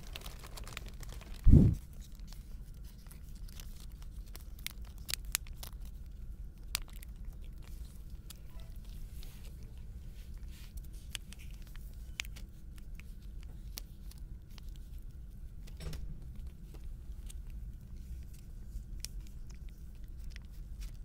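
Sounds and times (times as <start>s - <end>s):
low rumble: 1.2s - 1.8s
cat chewing wet food: 2.0s - 21.0s.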